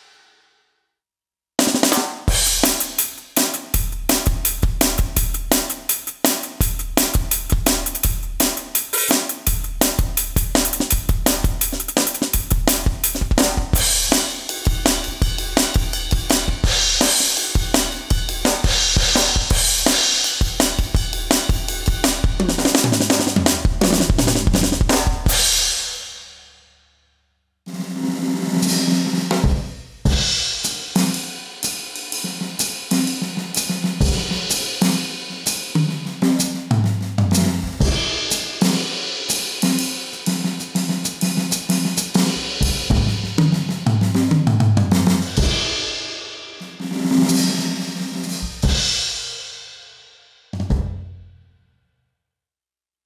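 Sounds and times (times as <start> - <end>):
electronic drum kit groove: 1.6 - 25.8, 29.3 - 46.0.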